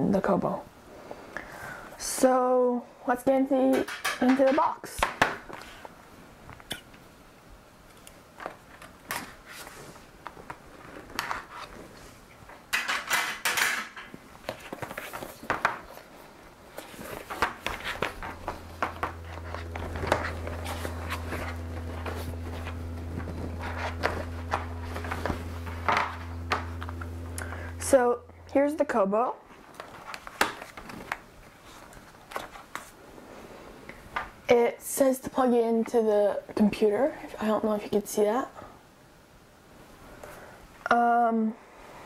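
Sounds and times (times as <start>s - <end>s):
steady low hum: 14.1s - 40.9s.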